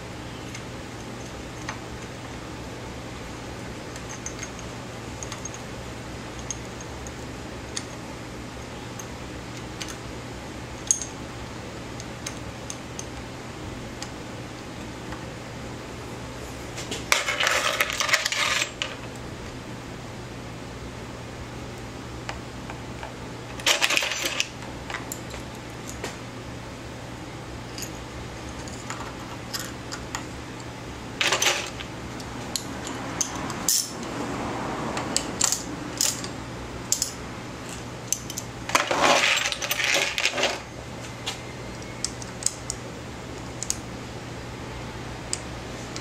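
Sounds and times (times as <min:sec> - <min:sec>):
metal tools clinking: 0:04.0 - 0:05.6, 0:31.2 - 0:31.9, 0:32.5 - 0:34.0, 0:35.4 - 0:36.3, 0:36.9 - 0:40.6.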